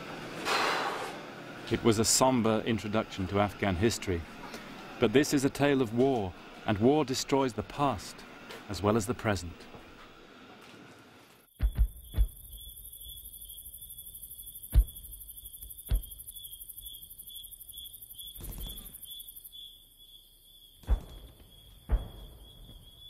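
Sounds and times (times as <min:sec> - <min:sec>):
crickets chirping: 0:11.5 - 0:23.0
high rapid insect buzz: 0:11.5 - 0:23.0.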